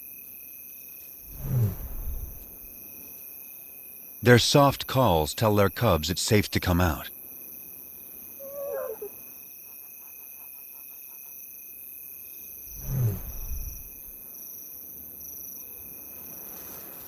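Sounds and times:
lioness calling softly: 8.4s - 9.2s.

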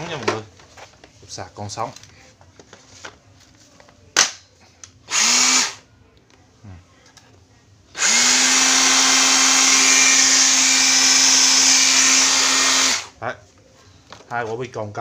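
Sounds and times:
rotary hammer motor spinning: 8.0s - 13.1s.

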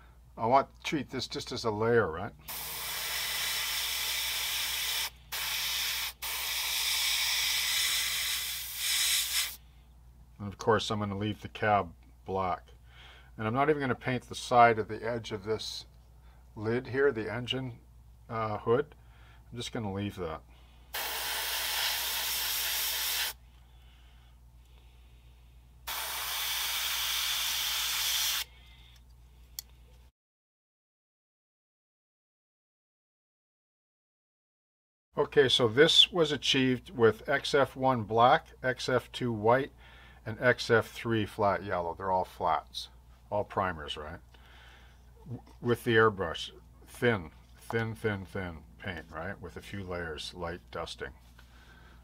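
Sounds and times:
airbrush spraying hiss: 2.5s - 9.6s, 20.9s - 23.4s, 25.9s - 28.5s.

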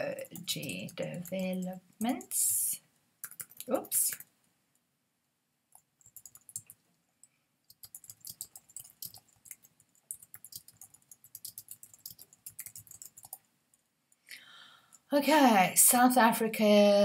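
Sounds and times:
typing on computer keyboard: 0.2s - 2.4s, 3.2s - 4.3s, 5.8s - 6.8s, 7.7s - 13.5s.

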